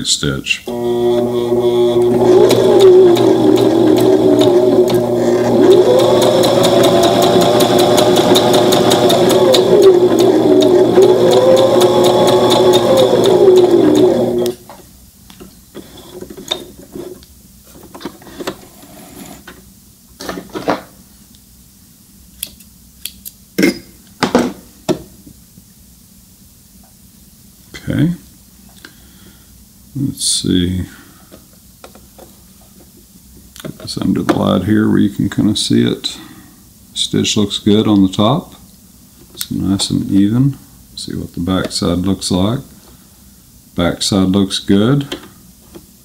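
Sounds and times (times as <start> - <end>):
sewing machine stitching: 0.7 - 14.6.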